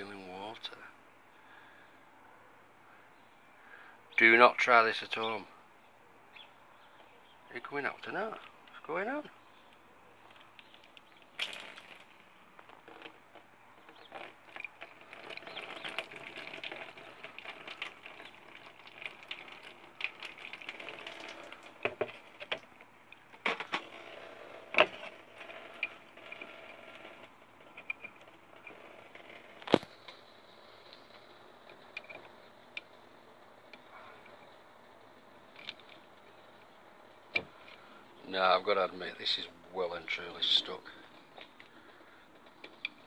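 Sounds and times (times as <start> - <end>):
small hard objects scraping and clicking: 10.2 - 34.6.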